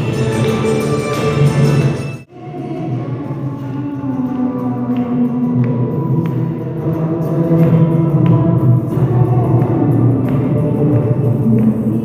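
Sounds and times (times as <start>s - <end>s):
hand claps: 0.0s - 1.8s, 7.5s - 12.0s
voices singing devotional song: 2.4s - 12.0s.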